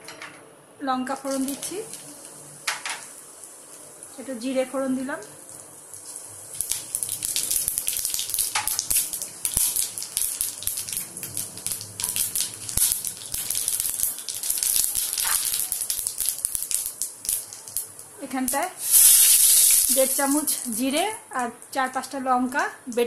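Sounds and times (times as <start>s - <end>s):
seeds sizzling in hot oil: 1.2s - 22.2s.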